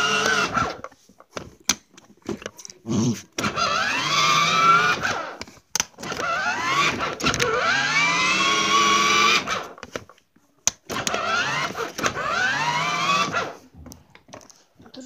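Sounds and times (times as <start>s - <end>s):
small electric motor whining: 0.0s - 0.9s, 3.4s - 5.4s, 6.0s - 9.9s, 10.9s - 13.6s.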